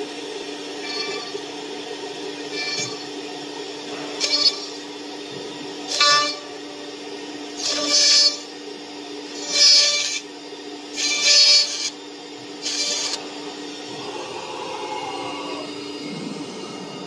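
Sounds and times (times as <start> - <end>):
high-pitched drilling bursts: 0.8 - 1.5, 2.5 - 3.1, 4.2 - 4.8, 7.6 - 8.5, 9.3 - 10.2, 10.9 - 17.0
spindle hum: 12.3 - 17.0.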